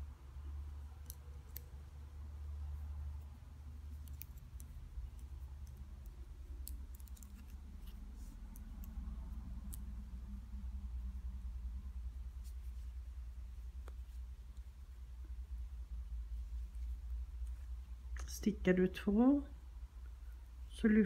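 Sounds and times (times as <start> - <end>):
low steady rumble: 0.0 - 21.0
wooden knitting needles clicking: 0.8 - 1.9, 3.1 - 10.0.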